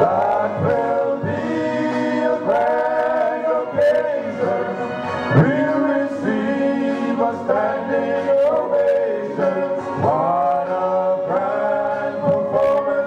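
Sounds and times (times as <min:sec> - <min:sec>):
male vocal group singing in harmony: 0:00.0 - 0:13.0.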